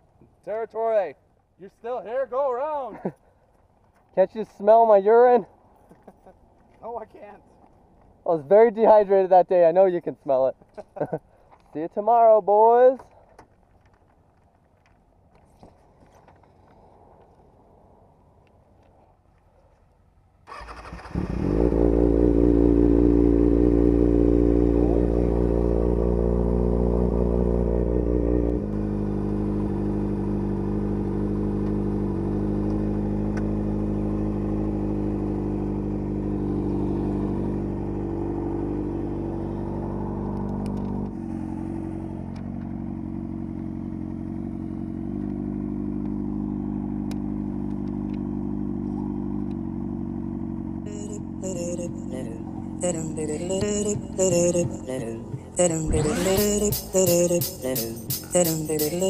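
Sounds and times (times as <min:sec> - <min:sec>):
motorcycle engine idling: 0:21.5 - 0:59.0.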